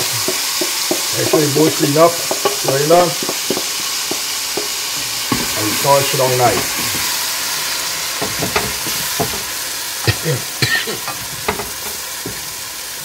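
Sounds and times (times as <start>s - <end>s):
spoon knocking against pot: 0.0s - 5.8s, 6.4s - 7.1s, 8.2s - 9.5s, 10.1s - 12.5s
spices sizzling in hot oil: 0.0s - 13.0s.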